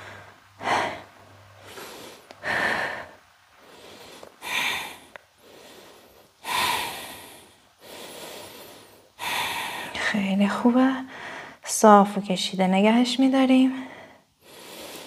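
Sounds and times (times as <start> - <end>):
forceful breaths: 0.0 - 10.0
soft breathing: 0.0 - 10.2, 11.0 - 11.6, 13.7 - 15.0.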